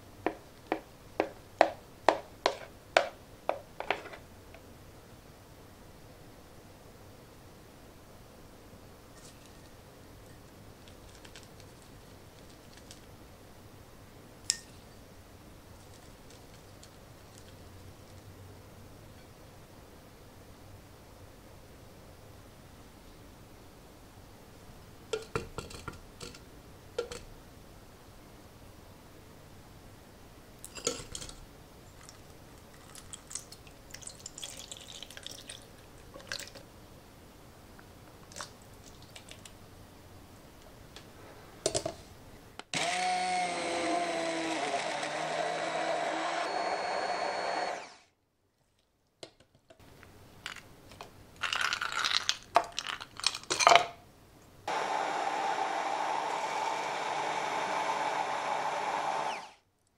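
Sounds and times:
immersion blender running: 42.8 - 48.0, 54.7 - 59.6.

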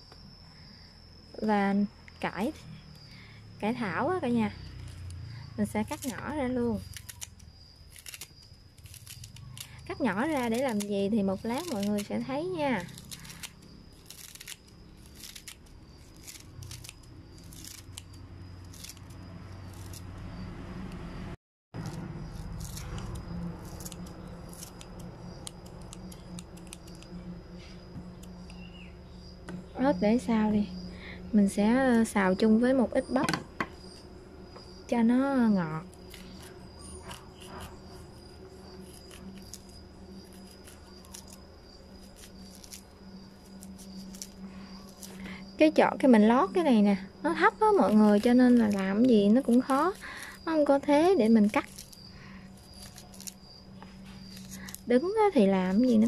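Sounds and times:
scissors snipping cabbage leaves: 3.8 - 21.1, 21.8 - 28.8, 34.6 - 56.0
knife cutting corn kernels: 3.9 - 21.1, 21.8 - 28.8, 35.6 - 45.6, 47.3 - 56.0.

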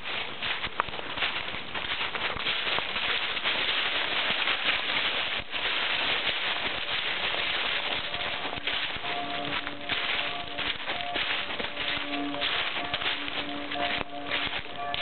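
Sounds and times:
footsteps through dry leaves: 0.0 - 15.0
held musical notes: 5.4 - 15.0.

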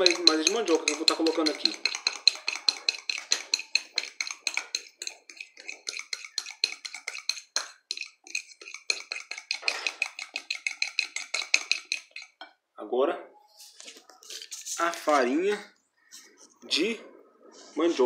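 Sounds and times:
whisk clicking against glass bowl: 0.0 - 12.5.

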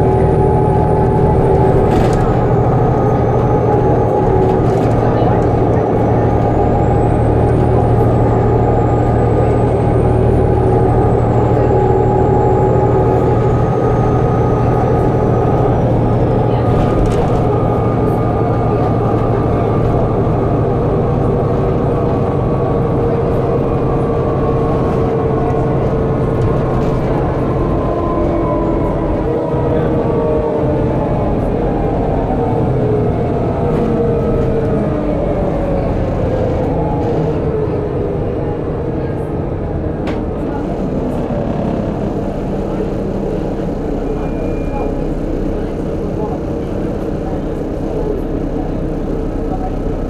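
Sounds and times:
bus body rattles: 0.0 - 28.8
bus diesel engine drone: 0.0 - 50.0.

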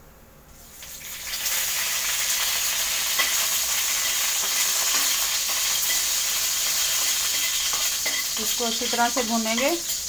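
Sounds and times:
leaves sizzling in hot oil: 0.6 - 10.0
spatula stirring pan: 2.7 - 10.0.

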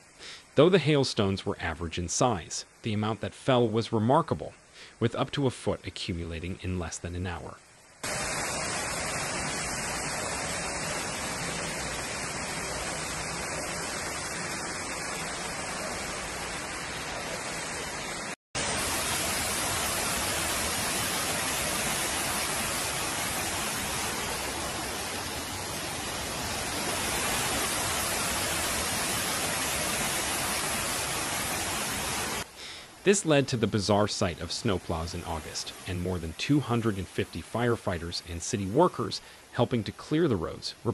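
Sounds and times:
water cascading down stairs: 8.0 - 39.1
floodwater rushing: 8.0 - 39.7.

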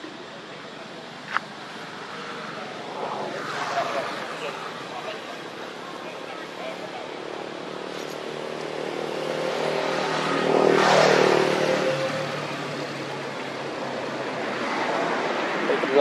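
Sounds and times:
vehicle engine passing by: 1.8 - 6.8, 8.4 - 16.0.

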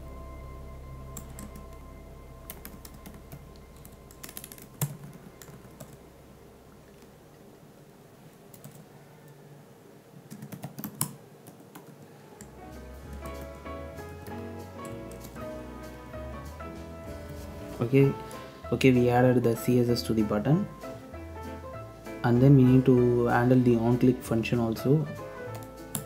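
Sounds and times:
typing on computer keyboard: 3.8 - 6.0, 8.5 - 8.9, 10.3 - 12.5, 13.1 - 13.6.

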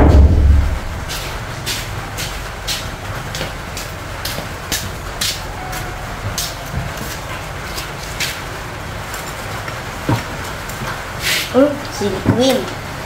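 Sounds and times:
steady low rumble: 0.0 - 5.3.

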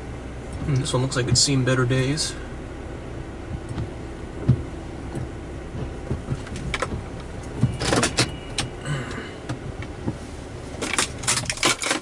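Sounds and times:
steady low hum: 0.0 - 12.0
clicks inside car cabin: 3.4 - 10.2, 10.8 - 12.0
rattling: 3.5 - 8.9, 10.8 - 12.0.

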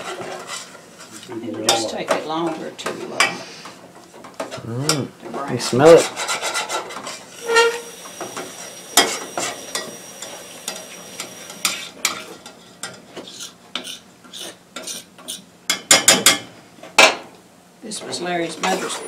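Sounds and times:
metal spoon scraping a saucepan: 5.9 - 7.9, 11.6 - 15.4
faint sizzle: 7.2 - 13.0.

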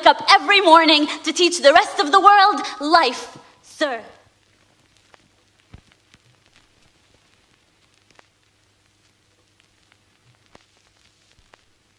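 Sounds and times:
faint hiss: 0.0 - 11.9
small clicks and crackles: 4.2 - 11.9.

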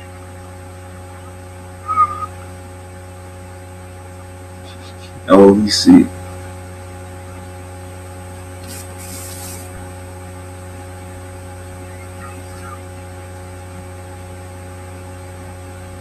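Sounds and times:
electrical mains hum: 0.0 - 16.0
light hiss: 8.6 - 10.0.

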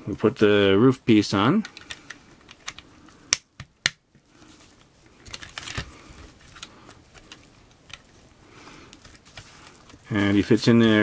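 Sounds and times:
hard plastic clicking: 1.6 - 4.0.

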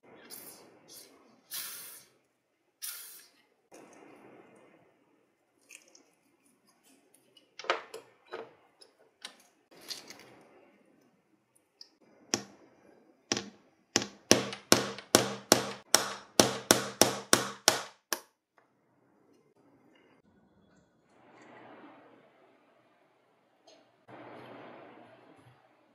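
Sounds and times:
hammer striking metal pin punch: 13.3 - 18.3.

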